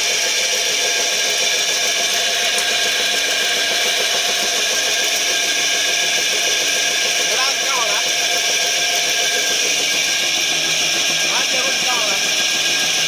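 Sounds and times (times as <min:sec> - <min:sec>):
machine running with mechanical drone: 0:00.0 - 0:13.0.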